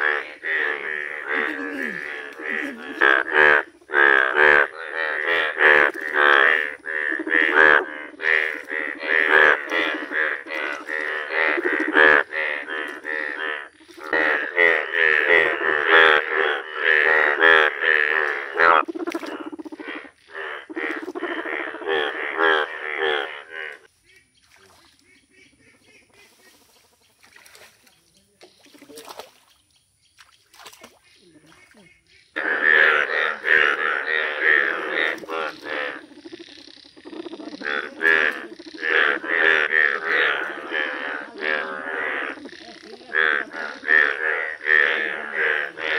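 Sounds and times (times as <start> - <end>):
frog rattling call: 0.0 - 24.2, 32.0 - 45.9
bullfrogs croaking: 0.0 - 45.9.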